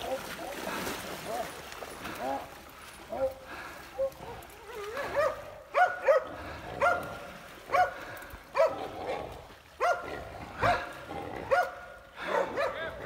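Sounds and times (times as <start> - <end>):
dog barking: 5.0 - 7.1, 7.7 - 8.0, 8.6 - 8.8, 9.8 - 10.9, 11.5 - 12.9.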